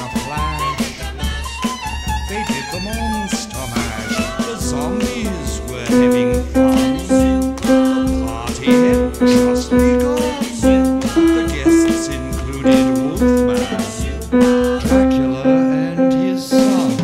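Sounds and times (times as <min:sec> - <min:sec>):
upright piano playing: 0:04.2 - 0:17.0.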